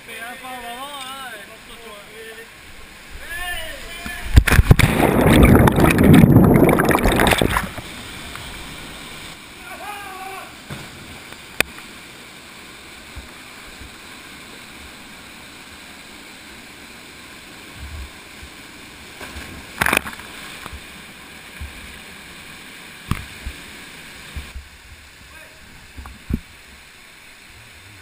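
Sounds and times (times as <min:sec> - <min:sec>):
small waterfall pouring into pool: 0:00.1 - 0:28.0
water sloshing: 0:04.4 - 0:08.2.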